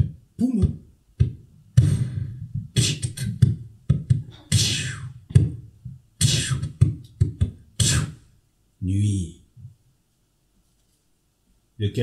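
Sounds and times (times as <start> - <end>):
beatboxing puffs pops and hisses: 1.8 - 5.2, 6.2 - 8.2.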